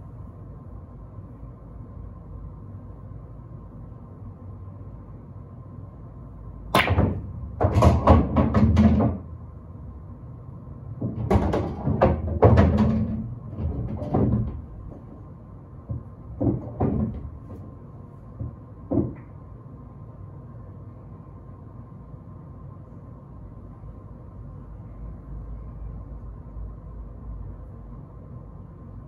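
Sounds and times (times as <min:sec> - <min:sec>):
balls thudding on cushions: 0:06.8 - 0:09.3, 0:11.0 - 0:15.2, 0:15.9 - 0:17.7, 0:18.3 - 0:19.3
pool balls clacking: 0:06.8 - 0:09.4, 0:11.0 - 0:19.4.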